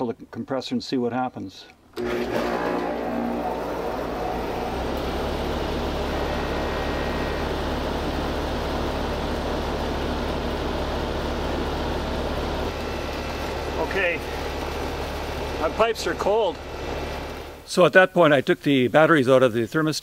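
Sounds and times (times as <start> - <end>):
condenser fan running: 2.0 - 17.7
heat pump compressor humming: 2.0 - 17.7.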